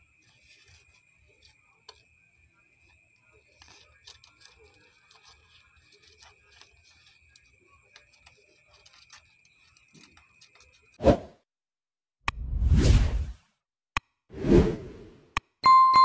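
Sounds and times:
faint steady high tone: 15.6 - 16.0.

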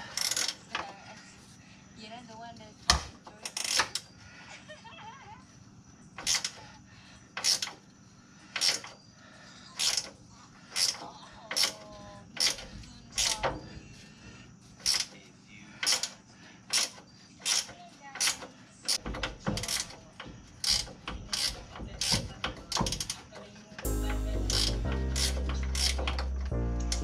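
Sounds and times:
ratcheting wrench clicking: 6.2 - 6.6, 7.4 - 7.8, 8.5 - 8.9, 14.8 - 15.2, 15.8 - 20.0, 20.6 - 23.2.

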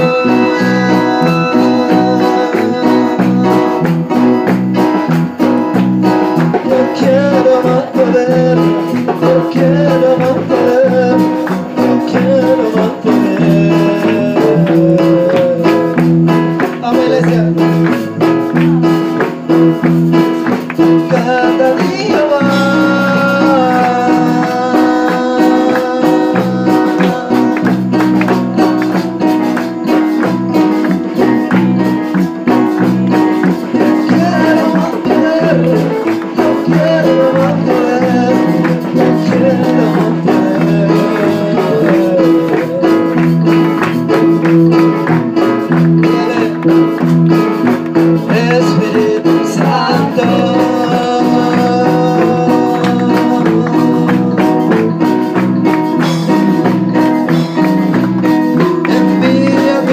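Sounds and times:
people singing: 0.0 - 4.0, 6.4 - 16.0, 21.1 - 29.8, 32.7 - 46.7, 48.3 - 55.6, 58.0 - 59.9
bass line: 0.0 - 59.9
steady beat: 0.0 - 59.9.

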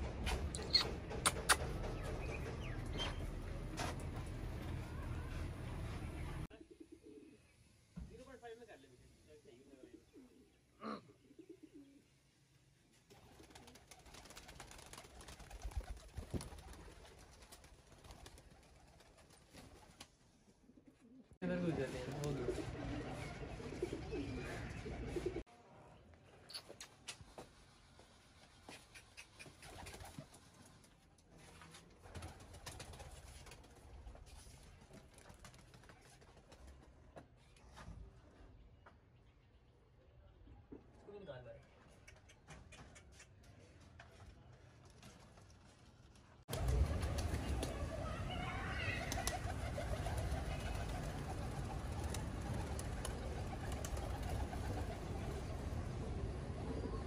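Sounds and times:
pigeons cooing: 9.9 - 12.0, 22.4 - 25.4.

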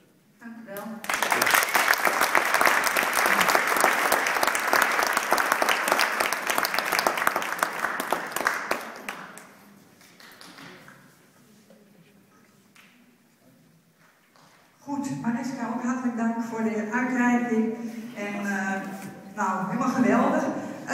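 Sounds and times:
audience applauding: 1.0 - 10.9.

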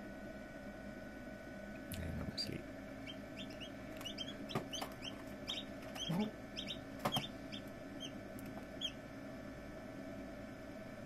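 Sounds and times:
steady low hum: 0.0 - 11.0
chicks peeping: 3.0 - 9.0.

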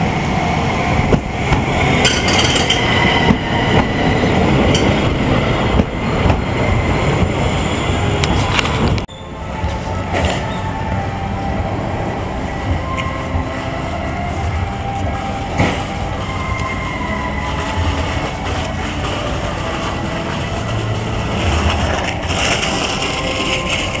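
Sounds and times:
tram running on rails: 0.0 - 24.0.

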